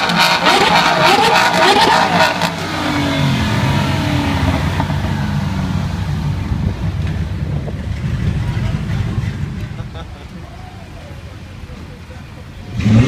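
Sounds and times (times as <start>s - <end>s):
sports car engine revving: 0.0s - 9.9s, 12.5s - 13.0s.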